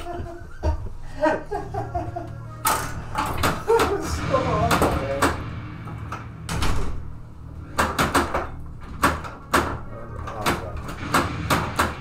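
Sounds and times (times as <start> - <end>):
low steady hum: 0.0 - 12.0
pinball machine clunks: 2.7 - 12.0.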